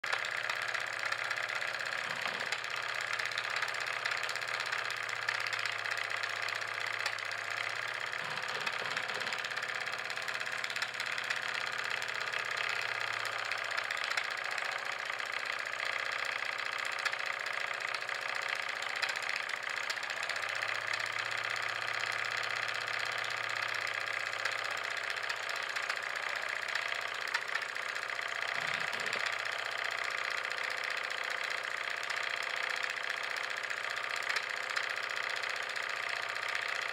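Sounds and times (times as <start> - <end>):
model steam engine chuffing: 0.0 - 36.9.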